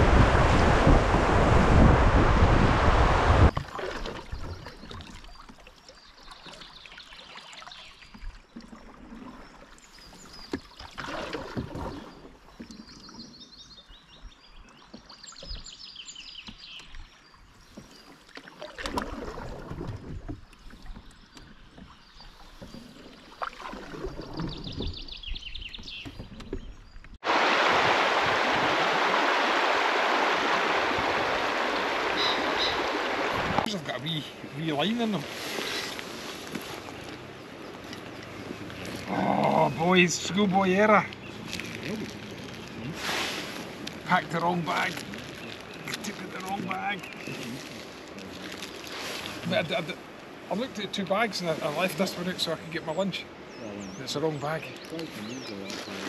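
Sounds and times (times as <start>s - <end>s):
wind buffeting microphone: 0.0s - 3.6s, 24.1s - 34.8s
rushing water: 0.0s - 13.4s, 14.8s - 25.1s, 25.8s - 56.0s
water splashes: 0.0s - 13.6s, 14.4s - 56.0s
flowing river: 0.0s - 56.0s
high bird chirps: 32.2s - 33.0s.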